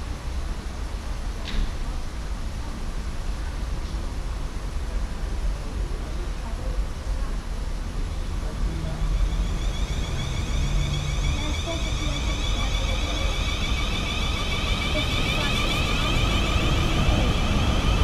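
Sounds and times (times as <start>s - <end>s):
train low rumble: 0.0s - 18.0s
electric train traction whine: 8.4s - 18.0s.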